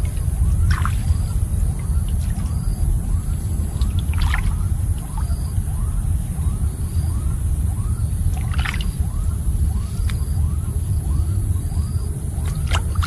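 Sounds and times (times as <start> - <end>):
water splashing: 0.0 - 5.9, 8.2 - 10.5, 11.8 - 13.0
low rumble: 0.0 - 13.0.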